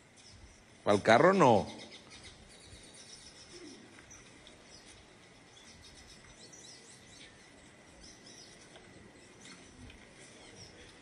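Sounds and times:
faint background hiss: 0.0s - 11.0s.

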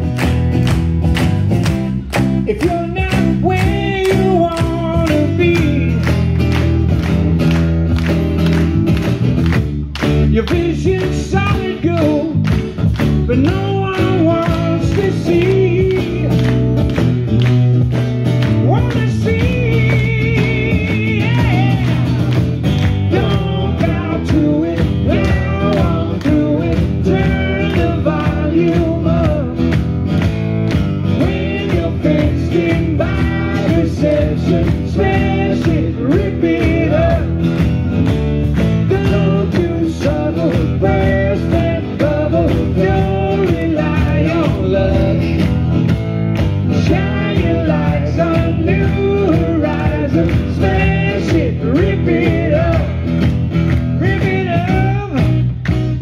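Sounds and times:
guitars strummed: 0.0s - 56.0s
man singing lead vocal: 2.4s - 6.2s, 10.2s - 12.5s, 13.2s - 16.6s, 18.6s - 29.7s, 31.1s - 37.4s, 38.8s - 45.5s, 46.7s - 53.0s, 54.0s - 55.4s.

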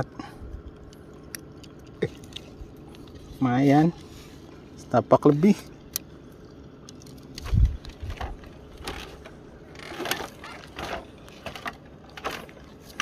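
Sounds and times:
light rustles and clicks: 6.8s - 13.0s.

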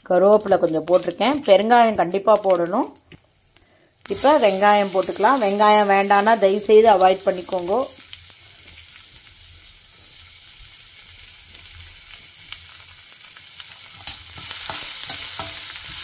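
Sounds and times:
onions sizzling in hot oil: 0.0s - 16.0s
spoon scraping a pan: 13.9s - 16.0s.

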